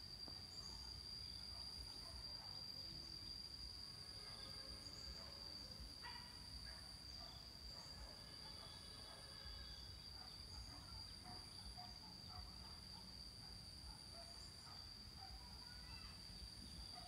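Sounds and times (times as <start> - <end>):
high-pitched insect drone: 0.0 - 17.0
faint chirps: 0.2 - 17.0.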